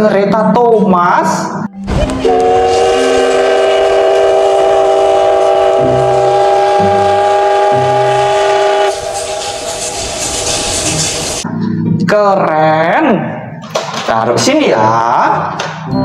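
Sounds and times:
steam locomotive whistle: 2.1 - 11.4
steady rushing noise: 7.8 - 11.5.

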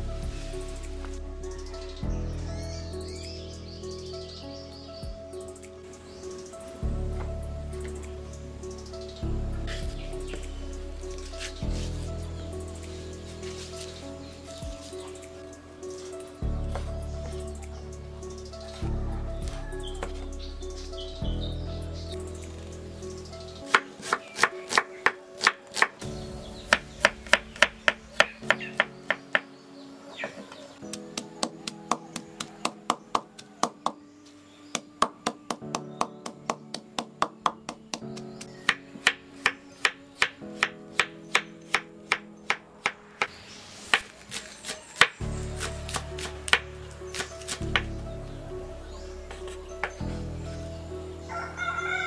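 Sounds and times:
low bass: 0.0 - 6.2, 6.8 - 23.7, 45.2 - 51.9
background music: 0.0 - 52.0.

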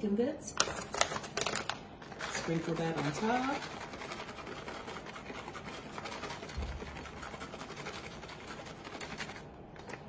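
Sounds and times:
plastic packet rustling: 0.6 - 7.6.

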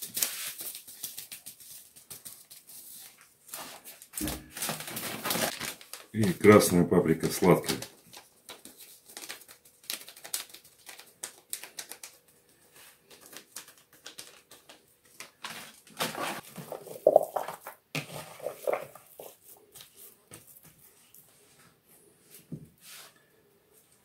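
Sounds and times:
paper sachet crinkling: 0.0 - 19.4
hands mixing meat in plastic bowl: 16.1 - 20.9.

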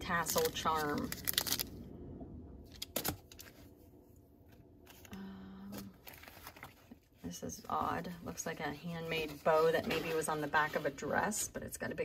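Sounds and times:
plastic packet crinkling: 0.1 - 1.8, 6.0 - 7.0.

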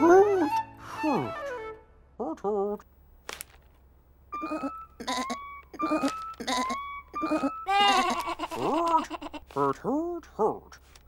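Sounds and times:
cartoon lamb bleating: 4.4 - 9.5.

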